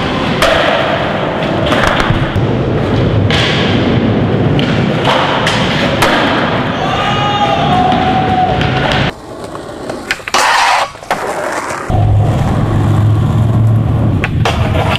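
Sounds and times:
skateboard impacts: 0.0s - 6.8s, 7.7s - 14.9s
skateboard wheels rolling on concrete: 0.0s - 14.9s
skateboard grinding metal rail: 9.3s - 14.9s.

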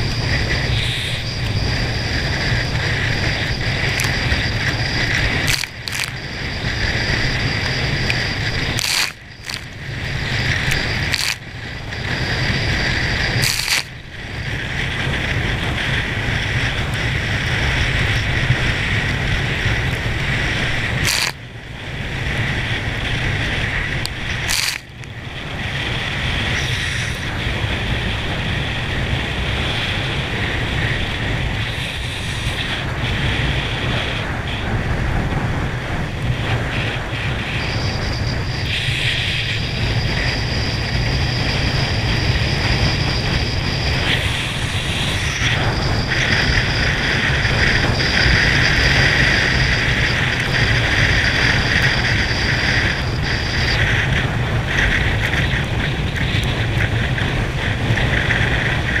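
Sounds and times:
hissing spray from boat wake: 0.0s - 19.6s, 20.3s - 24.9s, 29.0s - 34.3s
wind rushing over microphone: 0.0s - 59.0s.

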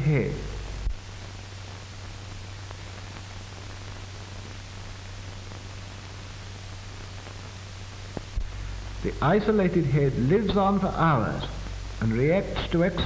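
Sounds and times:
low hum: 0.0s - 3.8s, 7.2s - 13.0s
film soundtrack hiss: 0.0s - 13.0s.

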